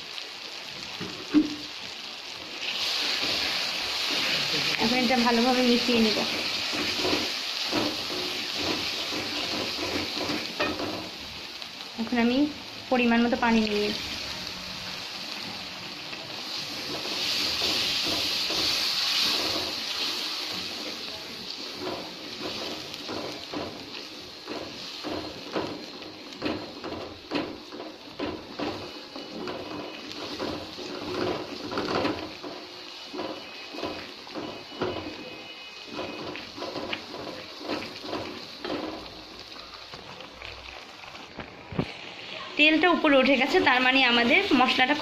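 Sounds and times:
spice paste sizzling in oil: 0.0 - 45.0
wooden spatula scraping pan: 4.1 - 11.1, 16.6 - 39.2.

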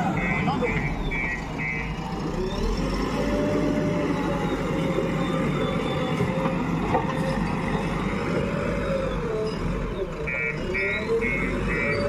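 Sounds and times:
reverse alarm beeping: 0.0 - 2.0, 10.3 - 12.0
backhoe diesel engine under load: 0.0 - 12.0.

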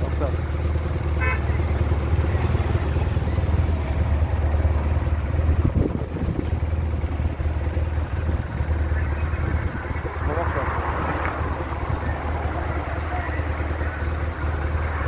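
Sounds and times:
motorcycle engine passing: 0.0 - 15.0
steady low rumble: 2.7 - 15.0
car engine passing: 8.3 - 15.0.

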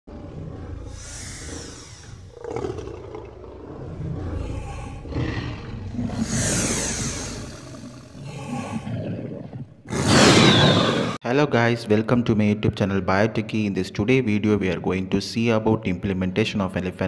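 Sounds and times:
dinosaur roars: 0.1 - 11.2.

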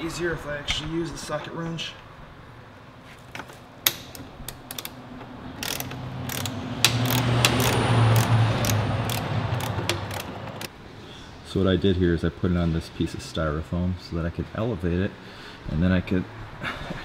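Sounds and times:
ratcheting socket wrench clicking: 3.9 - 5.0, 5.6 - 10.7.

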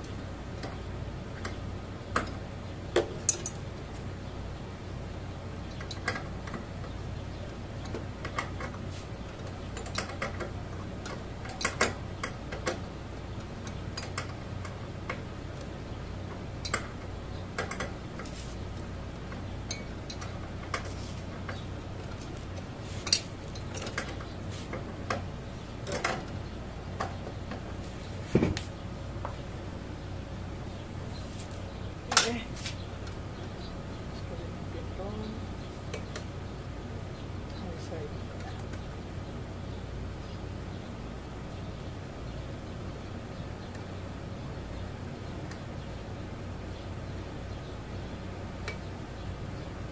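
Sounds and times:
steady low hum: 0.0 - 49.9
small metallic clicks and clinks: 19.7 - 20.9.

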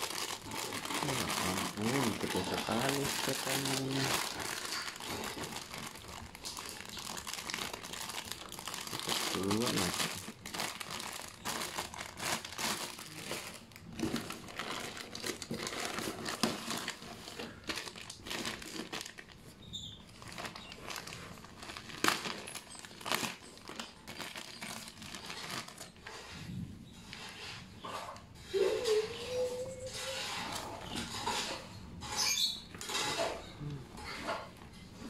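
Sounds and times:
plastic bags crinkling: 0.0 - 26.3.

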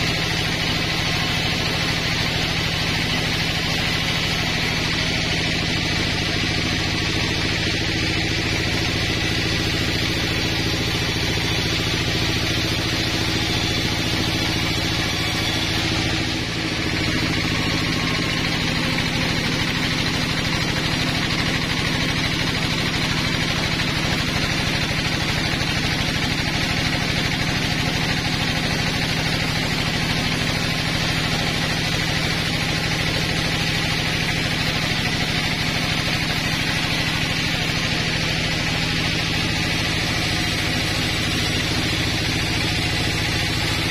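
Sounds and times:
band sawmill hum: 0.0 - 43.9
saw hissing through log: 6.8 - 43.9.

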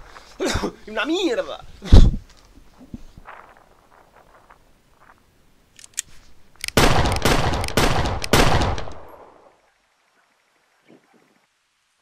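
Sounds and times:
pistol gunshots: 6.7 - 9.4.

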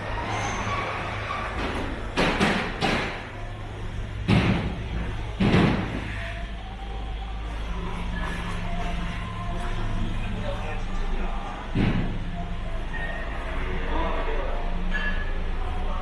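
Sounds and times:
steady low hum: 0.0 - 16.0
heavy bangs: 0.8 - 6.6.

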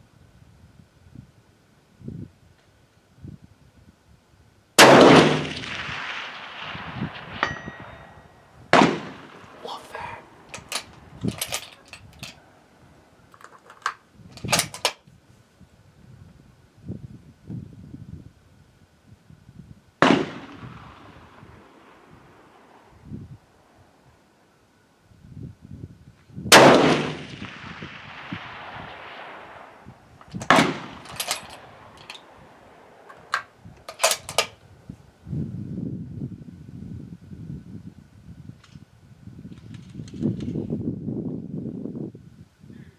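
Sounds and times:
rifle shot with echo: 4.8 - 11.6, 20.0 - 23.6, 26.5 - 34.5
rifle bolt clicking and clacking: 10.5 - 12.4, 13.3 - 15.0, 30.2 - 32.3, 33.0 - 34.6.

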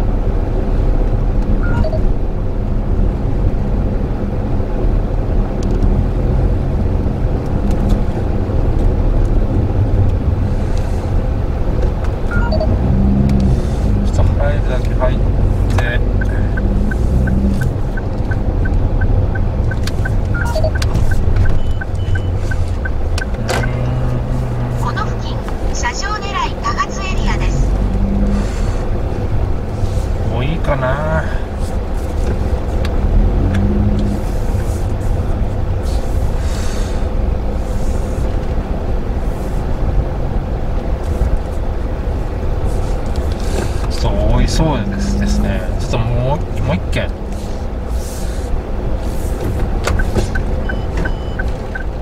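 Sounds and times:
car engine and road rumble: 0.0 - 52.0
turn signal ticking: 4.9 - 28.1, 48.5 - 52.0.

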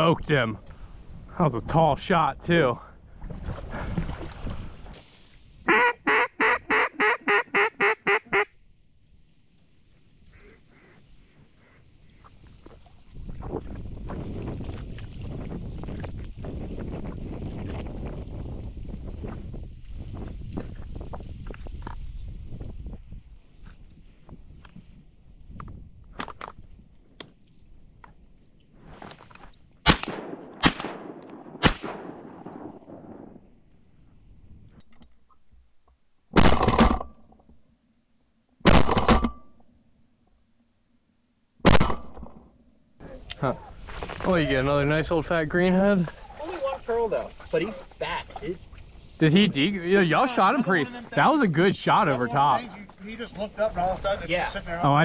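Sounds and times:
duck call quacks: 5.7 - 8.5, 10.3 - 11.0
shotgun shots echoing: 29.8 - 33.4.

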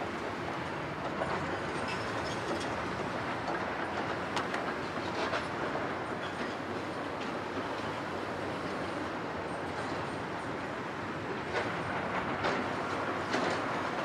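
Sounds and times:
excavator engine and hydraulic drone: 0.0 - 14.0.

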